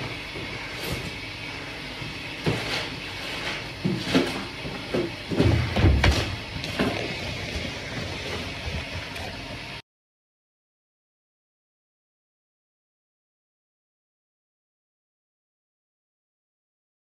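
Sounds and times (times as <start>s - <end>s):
steady background hum: 0.0s - 9.8s.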